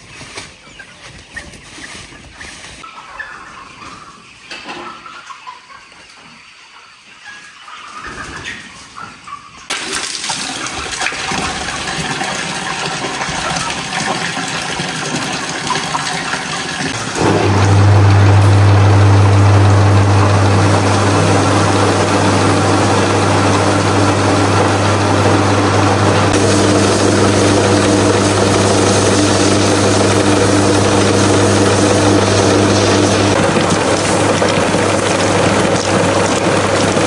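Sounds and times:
pump motor humming: 0:09.8 - 0:37.0
water spraying: 0:20.1 - 0:37.0.

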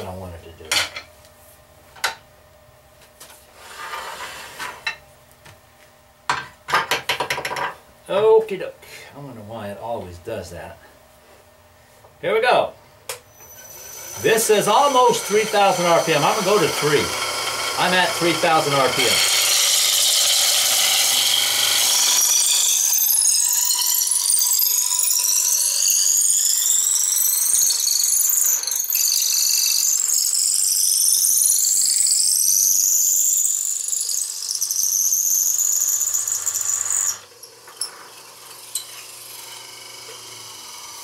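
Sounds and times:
shrill squeal of wood cutting: 0:13.3 - 0:41.0.

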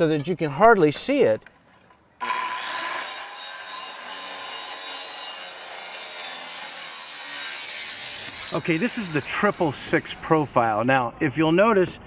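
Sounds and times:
circular saw cutting vinyl: 0:02.2 - 0:10.9.

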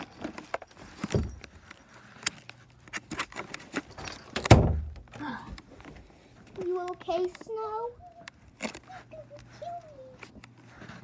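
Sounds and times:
heavy thump: 0:04.4 - 0:05.0.

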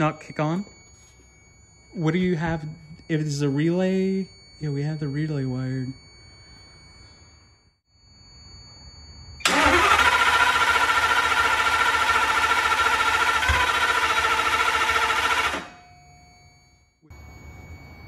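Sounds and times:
engine starter cranking: 0:09.4 - 0:15.8.

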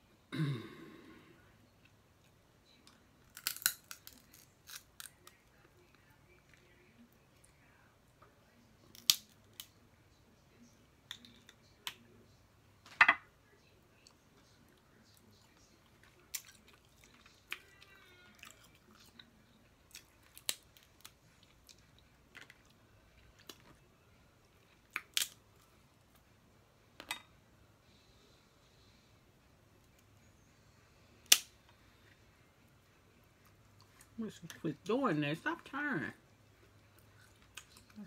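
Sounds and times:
crab shells cracking: 0:03.2 - 0:05.4, 0:08.9 - 0:09.7, 0:19.9 - 0:21.2, 0:24.8 - 0:25.4
chewing: 0:14.0 - 0:23.7, 0:36.5 - 0:38.0.

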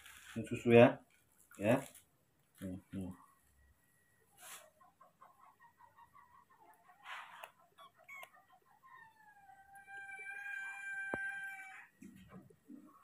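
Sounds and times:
rooster crowing: 0:09.0 - 0:12.0.

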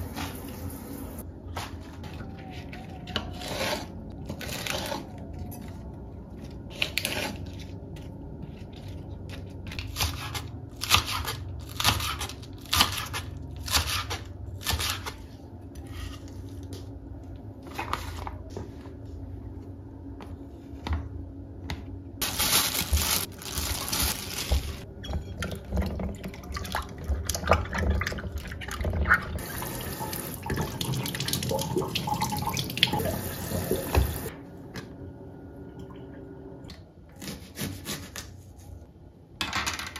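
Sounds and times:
tap water running into sink: 0:25.6 - 0:34.3.

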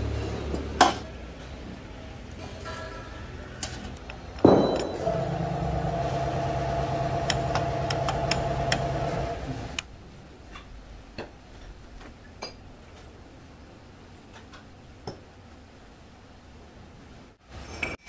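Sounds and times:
mechanical hum: 0:00.0 - 0:18.0
sharp clank: 0:04.4 - 0:05.1.

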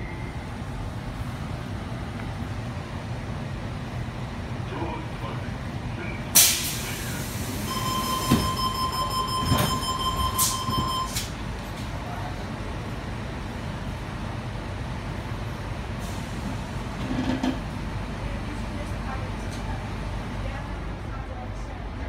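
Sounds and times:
train carriage rumble: 0:00.0 - 0:22.0
train door warning tone: 0:07.6 - 0:11.4.

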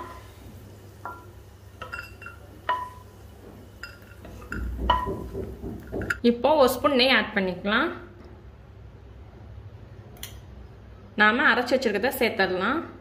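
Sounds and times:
stainless steel bowl clinking: 0:01.0 - 0:03.1, 0:03.8 - 0:05.2, 0:05.9 - 0:06.2.

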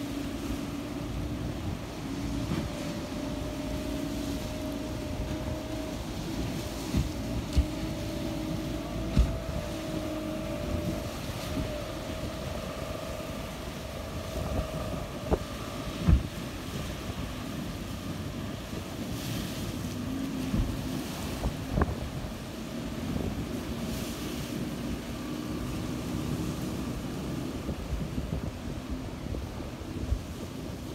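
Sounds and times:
outboard motor whining: 0:00.0 - 0:30.9
waves breaking: 0:00.0 - 0:30.9
wind on microphone: 0:00.0 - 0:30.9.

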